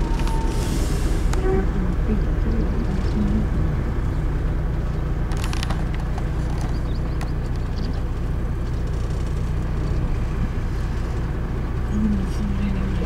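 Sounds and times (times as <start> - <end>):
bus engine and road noise: 0.0 - 13.0.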